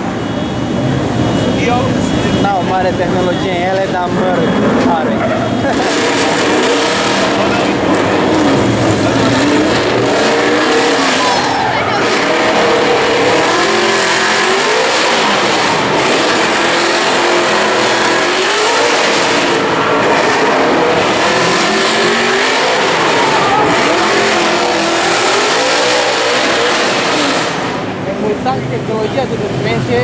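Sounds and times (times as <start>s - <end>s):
car engines revving: 0.0s - 30.0s.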